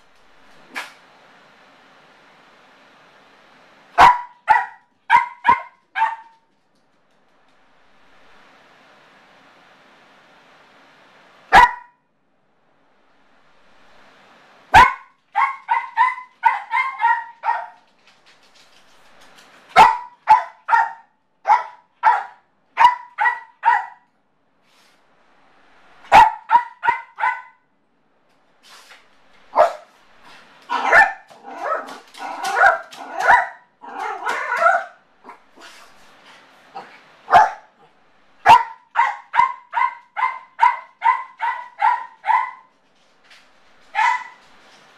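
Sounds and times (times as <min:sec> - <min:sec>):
small dog yapping: 0:04.0 - 0:06.4, 0:14.8 - 0:17.8, 0:19.8 - 0:24.0, 0:30.7 - 0:35.8, 0:38.5 - 0:42.7, 0:43.9 - 0:44.4.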